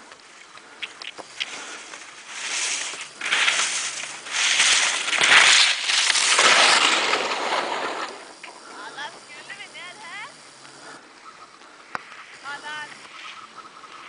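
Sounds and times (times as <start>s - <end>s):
faint ticks: 0.0s - 6.2s, 10.4s - 14.0s
skis carving through snow: 1.2s - 8.8s.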